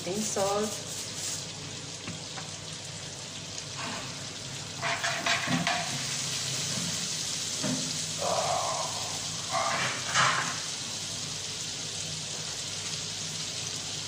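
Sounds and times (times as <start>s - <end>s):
butter sizzling in a frying pan: 0.0s - 14.0s
spatula scraping a pan: 4.8s - 6.1s, 9.5s - 10.8s.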